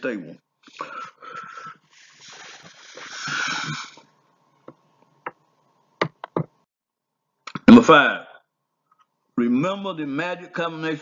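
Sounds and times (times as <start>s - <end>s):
man breathing noisily: 0.7s - 4.0s.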